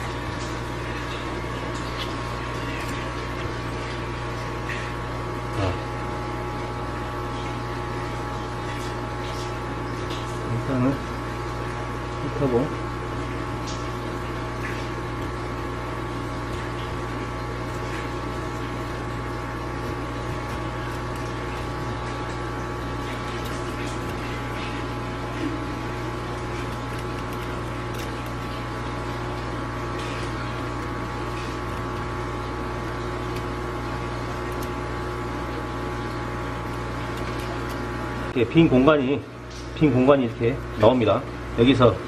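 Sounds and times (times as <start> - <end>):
low machine hum: 0.0 - 42.0
knife clicking and scraping fish: 18.9 - 32.2, 32.8 - 35.0, 36.5 - 37.9.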